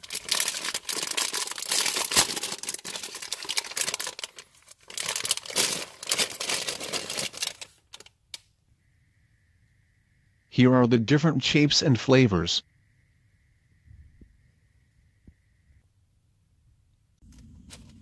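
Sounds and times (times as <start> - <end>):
plastic bag crinkling and tearing: 0.0 - 8.1.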